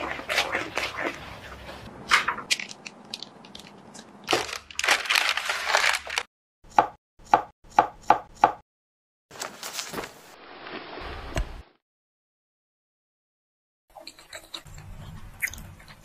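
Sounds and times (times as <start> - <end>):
baking paper rustling: 2.4 - 6.3, 9.3 - 11.0
knife chopping on wooden board: 6.7 - 8.6.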